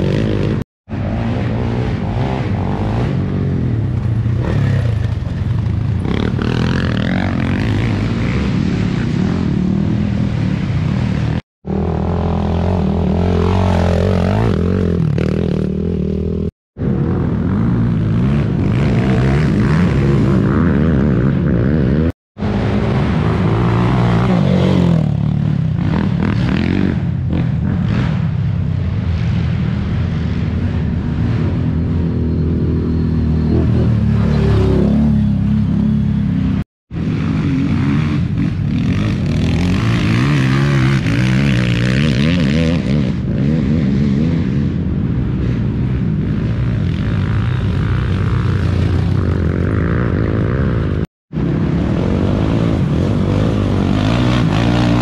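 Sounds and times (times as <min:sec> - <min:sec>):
quad engines revving: 0:51.8 - 0:55.0.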